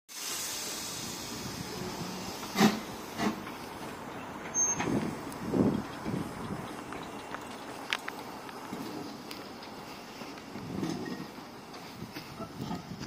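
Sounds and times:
steam hiss: 0.1 - 3.9
steam locomotive exhaust chuffs: 0.1 - 7.4.

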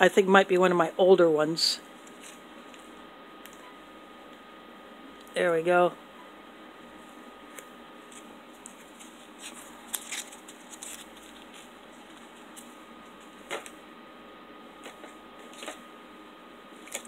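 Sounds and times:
steady low hiss: 0.0 - 17.0
plastic packets crinkling: 8.9 - 12.7.

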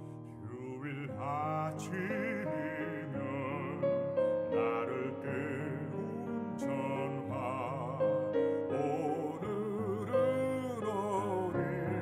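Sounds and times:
piano accompaniment: 0.0 - 12.0
baritone singing with vibrato: 0.1 - 12.0.

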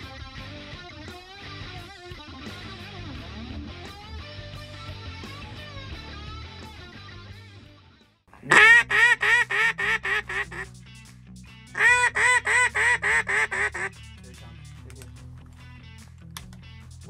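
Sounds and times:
duck call quacks: 8.4 - 10.7, 11.8 - 14.0.

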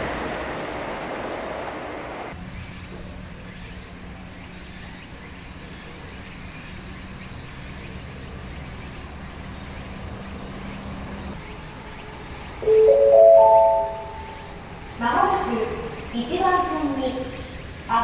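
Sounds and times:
low steady tone: 12.6 - 14.6.

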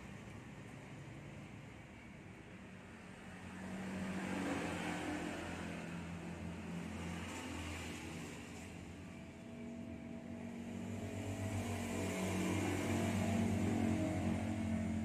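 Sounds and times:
low engine hum: 4.1 - 15.0.

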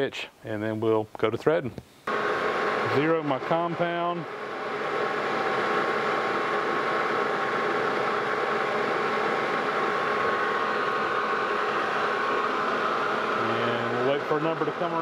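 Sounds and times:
lathe hum: 2.1 - 15.0
steady whining tones: 2.1 - 15.0.

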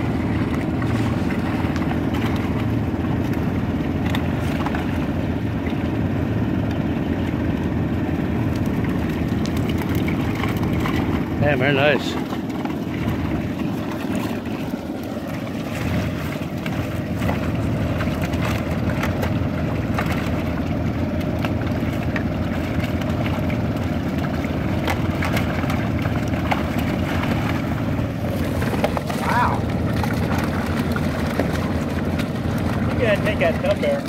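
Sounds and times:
truck mechanical running noise: 0.0 - 34.0.

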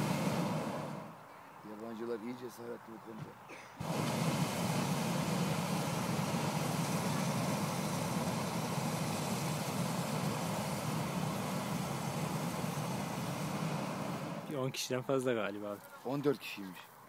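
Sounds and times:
propane burner roaring: 0.0 - 1.2, 3.8 - 14.6.

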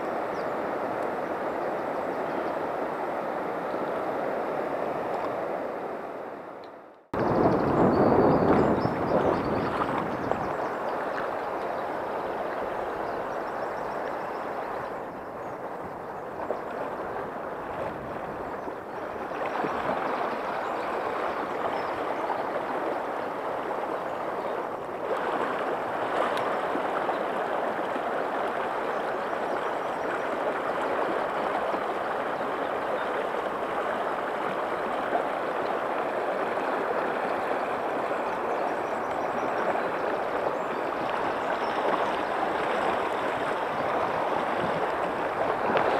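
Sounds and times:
river rushing over stones: 19.3 - 45.9.

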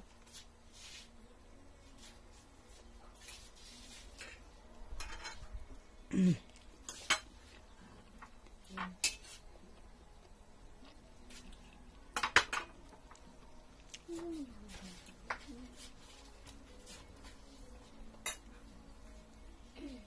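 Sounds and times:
cutlery clinking on plates: 4.2 - 5.5, 6.8 - 7.4, 8.8 - 9.4, 18.1 - 18.6.

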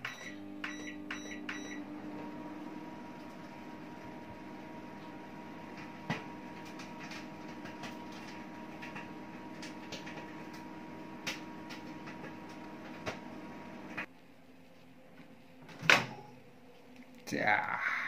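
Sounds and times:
microwave oven humming: 0.0 - 14.1.

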